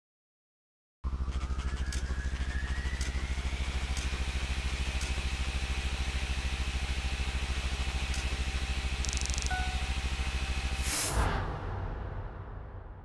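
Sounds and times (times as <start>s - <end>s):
pulsing engine-like drone: 1.0s - 13.0s
thin whine: 1.4s - 11.0s.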